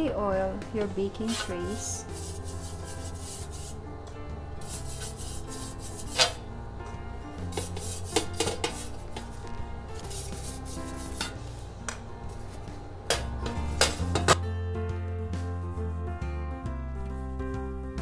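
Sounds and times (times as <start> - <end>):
background music: 0.0 - 18.0
pastry brush rubbing metal tray: 1.2 - 3.8, 4.6 - 6.4, 7.4 - 11.5.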